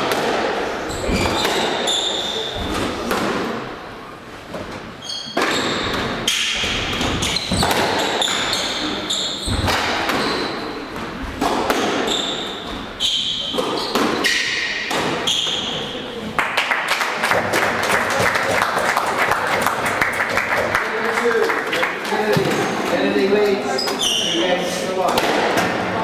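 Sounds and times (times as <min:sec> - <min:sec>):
sneakers squeaking on wooden floor: 0:00.8 - 0:03.1, 0:04.6 - 0:16.1, 0:22.2 - 0:24.7
squash ball cracking off rackets: 0:05.3 - 0:08.5, 0:11.3 - 0:12.1.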